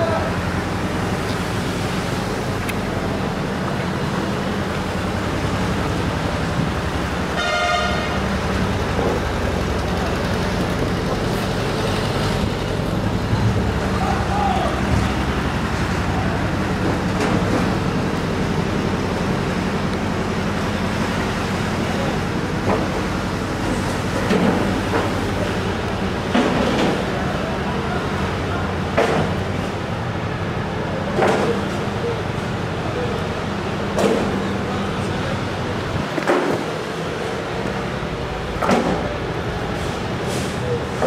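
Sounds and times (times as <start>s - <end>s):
road traffic: 0.0s - 41.0s
vehicle horn toot: 7.4s - 8.2s.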